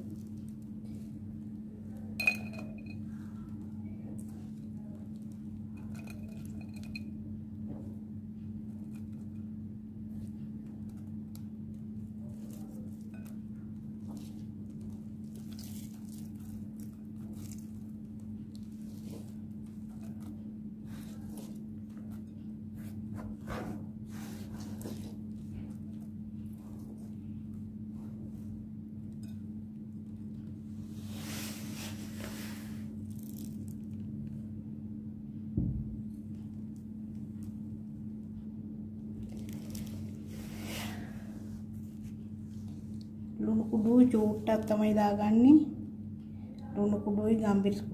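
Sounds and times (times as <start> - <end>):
steady low hum: 0.0 - 47.9
dull thump: 35.6 - 36.0.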